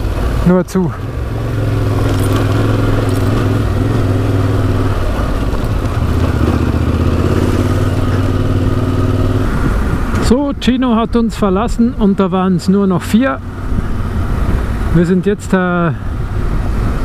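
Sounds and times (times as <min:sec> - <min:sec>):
motorcycle engine running: 0:00.0 - 0:10.3.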